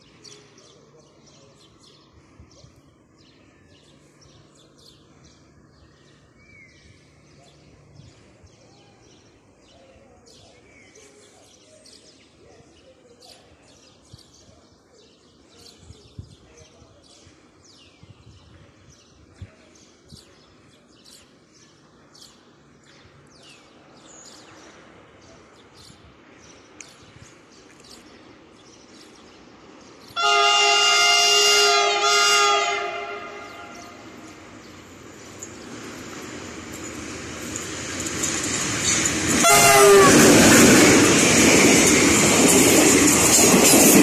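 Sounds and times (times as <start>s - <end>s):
train rumbling: 21.3s - 44.0s
diesel locomotive chord horn: 30.2s - 34.2s, 39.4s - 40.4s
birds chirping: 31.7s - 43.9s.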